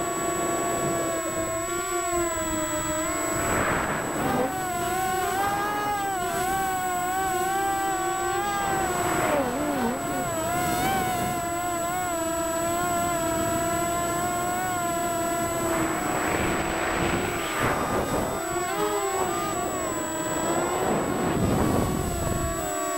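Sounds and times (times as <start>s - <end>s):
drone motors whining: 0.0s - 22.9s
rushing noise: 3.0s - 4.5s, 15.2s - 18.6s.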